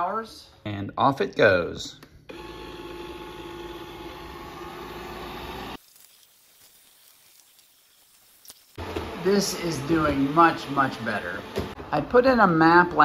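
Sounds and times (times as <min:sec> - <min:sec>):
robot vacuum whirring: 0:02.3 - 0:08.0, 0:08.8 - 0:11.8.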